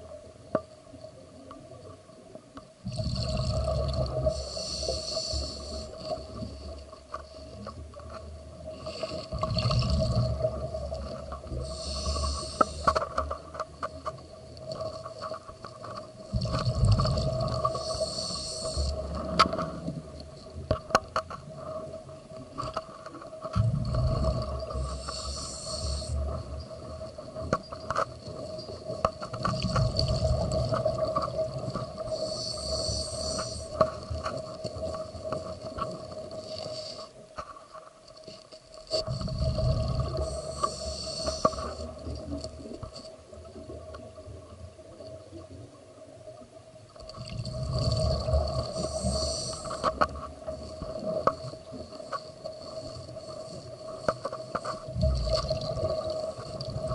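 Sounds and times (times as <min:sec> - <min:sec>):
exhaled bubbles rumbling: 0:02.8 - 0:04.5, 0:07.8 - 0:12.1, 0:13.4 - 0:20.8, 0:23.4 - 0:25.2, 0:29.4 - 0:33.1, 0:39.0 - 0:40.7, 0:47.0 - 0:51.8, 0:54.8 - 0:56.9
regulator inhale hiss: 0:03.2 - 0:07.6, 0:11.5 - 0:13.3, 0:17.6 - 0:19.3, 0:24.7 - 0:26.5, 0:32.0 - 0:34.2, 0:36.3 - 0:37.2, 0:40.0 - 0:42.2, 0:47.8 - 0:50.7.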